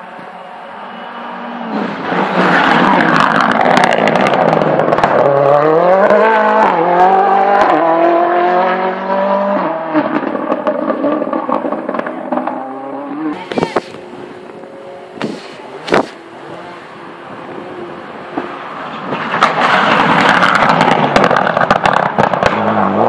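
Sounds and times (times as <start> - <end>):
rally car revving past: 1.0 - 13.4.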